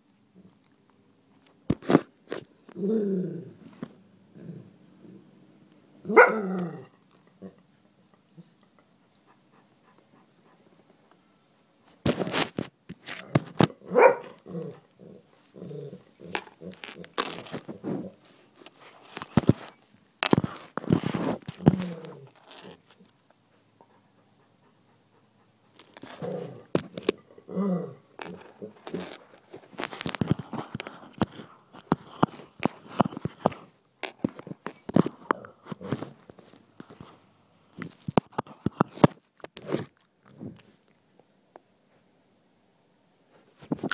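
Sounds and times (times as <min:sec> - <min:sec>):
soft rubbing and rustling: 0:15.2 - 0:23.2, 0:28.2 - 0:40.9
knocks and scrapes on microphone: 0:17.4 - 0:22.0.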